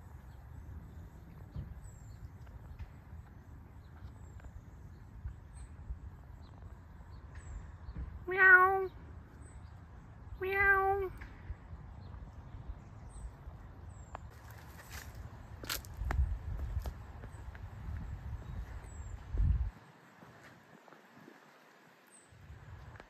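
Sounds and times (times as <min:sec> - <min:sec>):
cat meowing: 0:08.2 - 0:08.9, 0:10.4 - 0:11.2.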